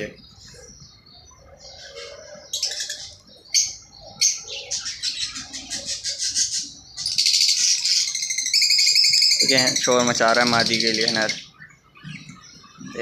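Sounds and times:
lovebird chirping shrilly: 0:06.3 - 0:09.9.

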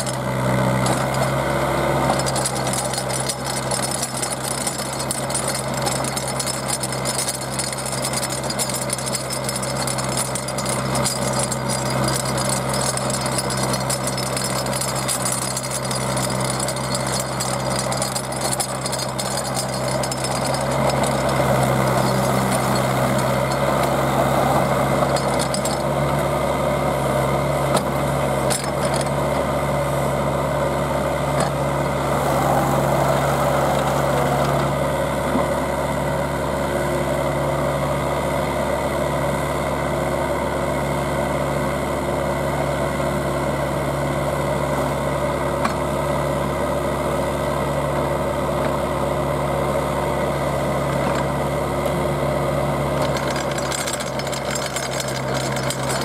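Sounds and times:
auger grinding through rock: 0:00.0 - 0:26.4, 0:31.3 - 0:35.5
drill rig engine running: 0:00.0 - 0:56.0.

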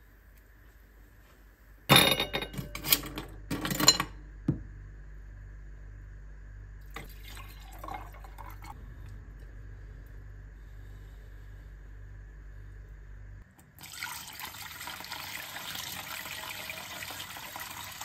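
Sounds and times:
steady low hum: 0:00.0 - 0:13.8
glass and ice clinking: 0:01.9 - 0:03.0, 0:07.0 - 0:08.7
drink pouring into glass: 0:07.0 - 0:08.8, 0:13.8 - 0:17.9.

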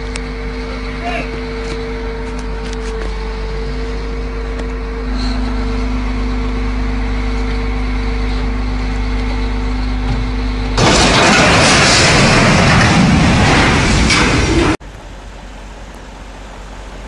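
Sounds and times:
large engine running: 0:00.0 - 0:17.0
loud crash: 0:10.8 - 0:14.8.

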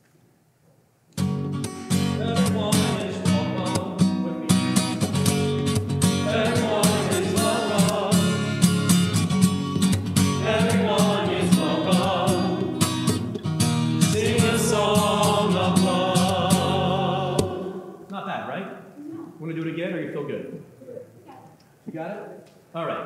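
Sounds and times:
acoustic guitar strumming: 0:01.2 - 0:18.1
small choir singing in unison: 0:02.2 - 0:04.4, 0:06.1 - 0:08.9, 0:10.2 - 0:13.4, 0:14.0 - 0:18.1.

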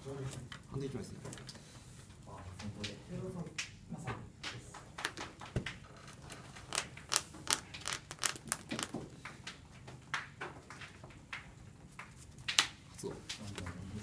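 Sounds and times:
cards tapping on playmats: 0:06.7 - 0:12.8.

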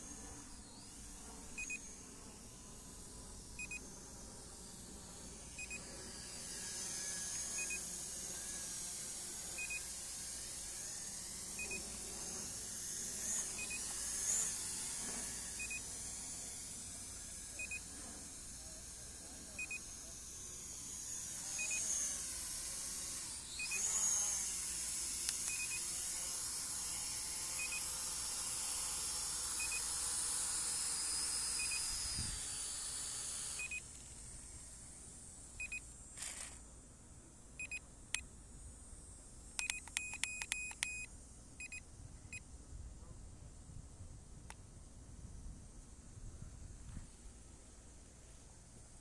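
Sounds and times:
high-pitched whine and hiss: 0:00.0 - 0:49.0
sharp clicks and quick beeps: 0:39.6 - 0:41.8.

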